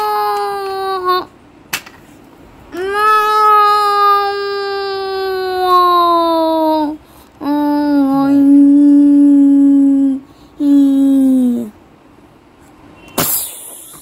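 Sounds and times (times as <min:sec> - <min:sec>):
child wailing: 0:00.0 - 0:01.3, 0:02.7 - 0:11.7
short hiss: 0:13.0 - 0:13.9.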